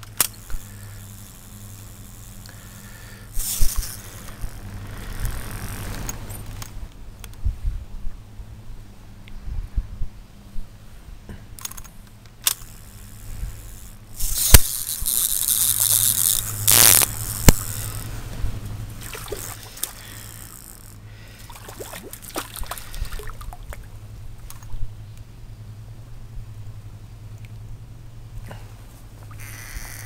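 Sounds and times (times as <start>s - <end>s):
fishing reel spinning rush: 0.0s - 6.9s, 12.5s - 23.5s, 29.3s - 30.0s
reel scraping: 0.1s - 6.9s, 12.4s - 23.4s, 29.2s - 30.0s.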